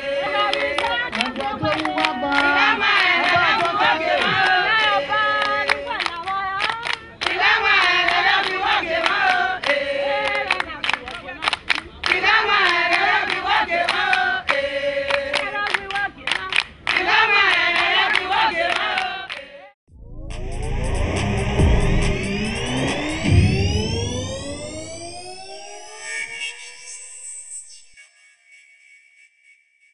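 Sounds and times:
group of voices singing: 0.0s - 19.8s.

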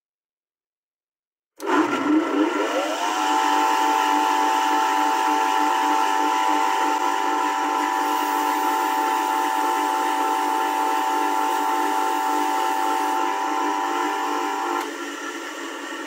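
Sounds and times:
bench grinder hum: 1.6s - 16.0s
wire on grinder wheel whine: 2.7s - 15.0s.

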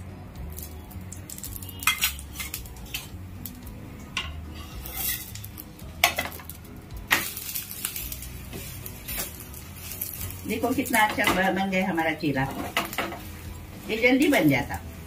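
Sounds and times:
spatula scraping a griddle: 1.6s - 3.1s, 4.4s - 6.3s, 7.2s - 10.4s.

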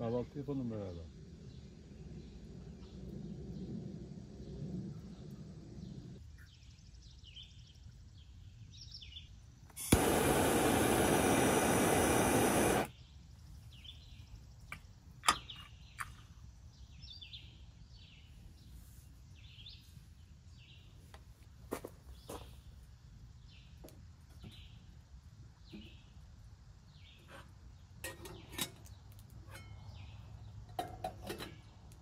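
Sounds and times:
birds chirping: 4.4s - 12.9s
propane torch hissing: 9.7s - 12.9s.

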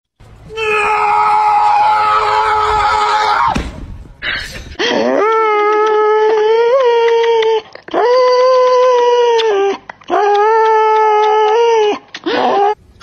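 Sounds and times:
high-pitched scream: 0.4s - 3.6s.

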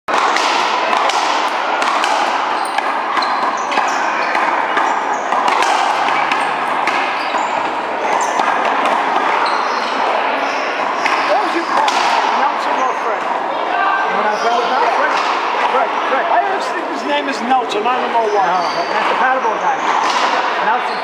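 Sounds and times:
racquetball smacks: 0.1s - 9.4s, 11.0s - 12.4s.

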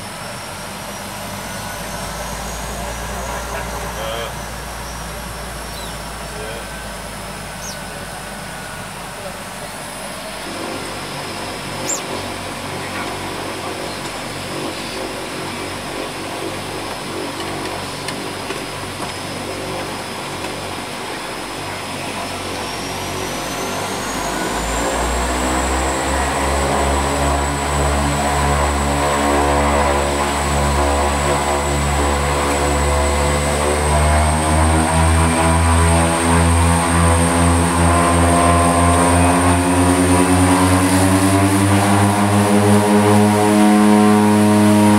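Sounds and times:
propeller drone: 0.0s - 44.9s
turboprop engines whining: 0.0s - 44.9s.

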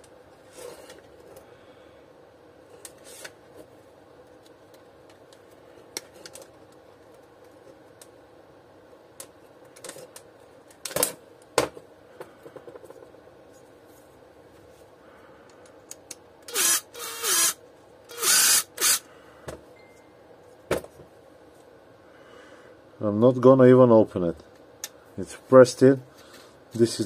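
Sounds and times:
impact driver spinning: 16.5s - 19.0s.

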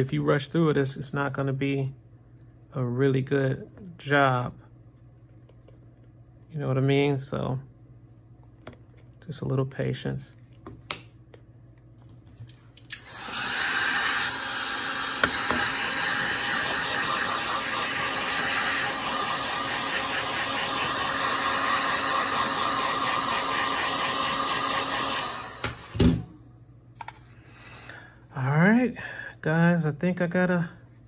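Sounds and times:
heat gun blowing: 12.9s - 26.4s.

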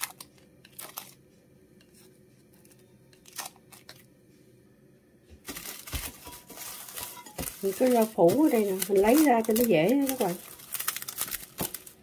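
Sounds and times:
plastic film crinkling: 0.0s - 1.2s, 2.6s - 4.0s, 5.4s - 12.0s.

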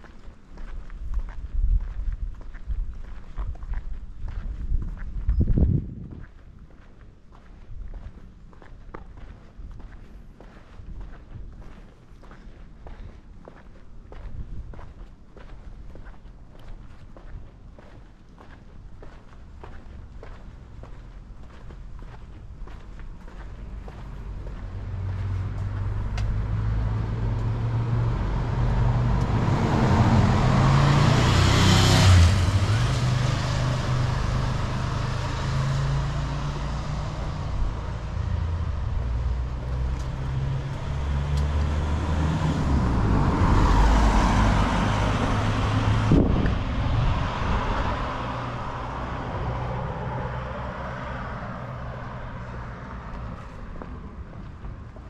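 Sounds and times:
cars driving past: 19.0s - 55.0s.

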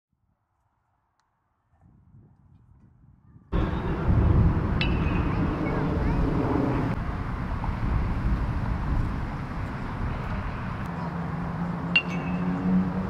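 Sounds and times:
outdoor low rumble: 3.4s - 10.9s.

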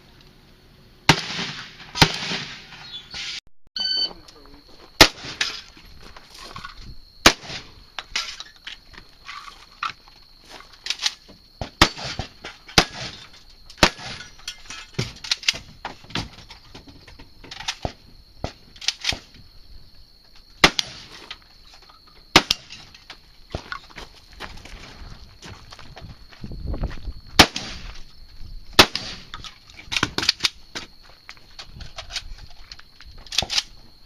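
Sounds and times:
shotgun shots: 1.1s - 2.9s, 5.0s - 5.6s, 7.2s - 7.8s, 11.7s - 14.3s, 20.6s - 21.1s, 22.3s - 22.8s, 27.4s - 27.9s, 28.8s - 29.4s.

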